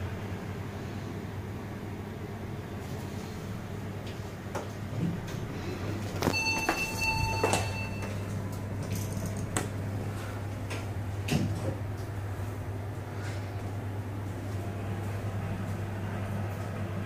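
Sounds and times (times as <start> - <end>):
elevator low hum: 0.0 - 17.0
electronic beep: 6.3 - 8.2.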